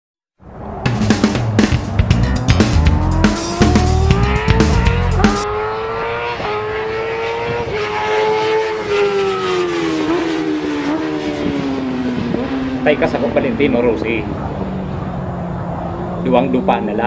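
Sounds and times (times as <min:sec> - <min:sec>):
intro music with bass beat: 0:00.9 - 0:05.4
high buzzing motor drone: 0:01.3 - 0:17.0.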